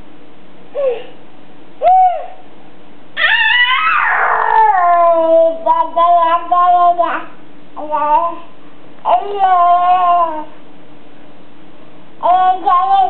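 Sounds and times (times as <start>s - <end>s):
toddler vocalizing: 3.2s - 5.6s.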